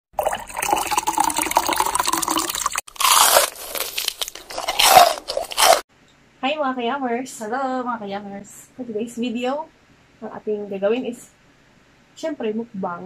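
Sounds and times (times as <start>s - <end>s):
loud crunching and crackling: 2.9s - 5.8s.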